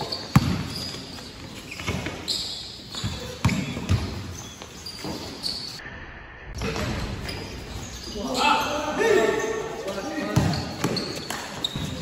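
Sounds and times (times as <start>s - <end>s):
basketball bouncing on court: 0.0s - 5.3s, 10.0s - 12.0s
players' voices: 7.8s - 12.0s.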